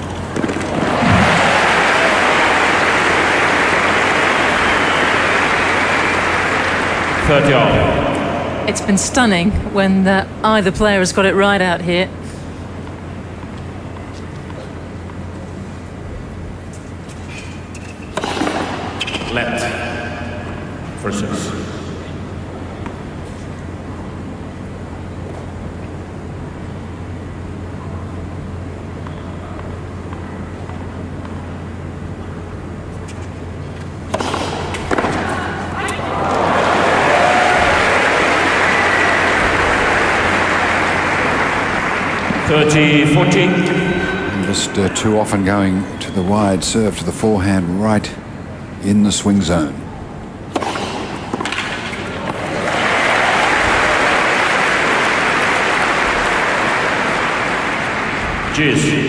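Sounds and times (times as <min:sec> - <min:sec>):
steady low hum: 0:00.0 - 0:59.0
crowd applauding: 0:00.4 - 0:08.8, 0:36.0 - 0:45.2, 0:52.2 - 0:59.0
racquet hitting tennis ball: 0:17.5 - 0:20.8, 0:34.0 - 0:36.0, 0:50.5 - 0:52.8.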